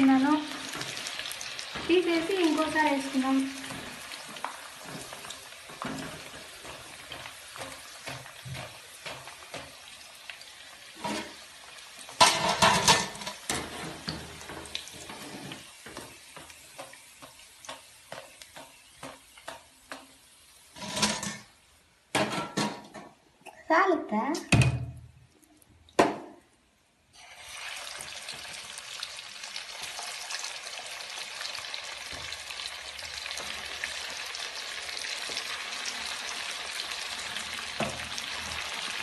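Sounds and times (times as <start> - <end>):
food deep-frying in oil: 0.0 - 22.2, 24.8 - 39.0
strainer clattering in pan: 3.6 - 9.9, 11.0 - 11.4, 12.1 - 16.9, 20.7 - 21.5, 22.1 - 23.1.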